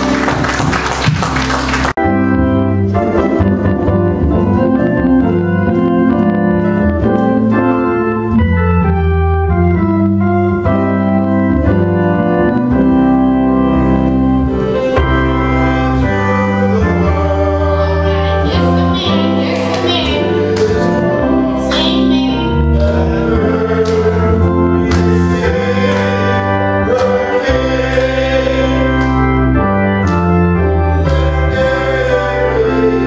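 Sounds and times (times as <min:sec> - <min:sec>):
organ playing held chords: 0:00.0 - 0:33.0.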